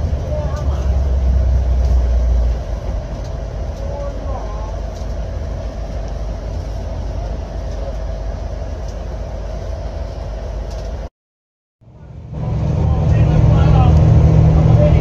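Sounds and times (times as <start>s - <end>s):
bus engine drone: 0.0s - 11.1s, 11.8s - 15.0s.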